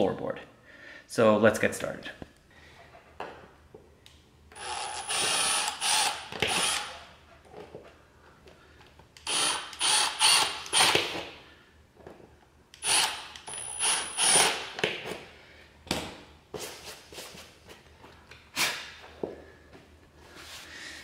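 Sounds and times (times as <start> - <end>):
cordless drill bursts: 4.6 - 7.0, 9.2 - 11.0, 12.8 - 14.7.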